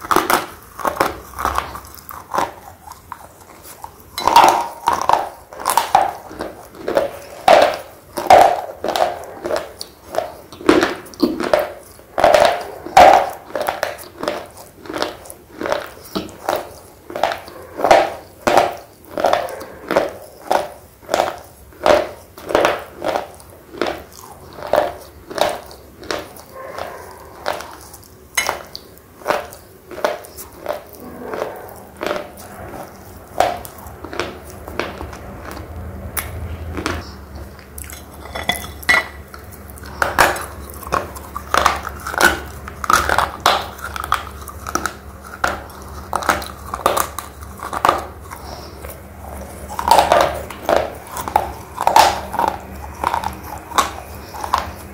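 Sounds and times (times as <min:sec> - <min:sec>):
gritty chewing crunches: 0:00.0 - 0:54.9.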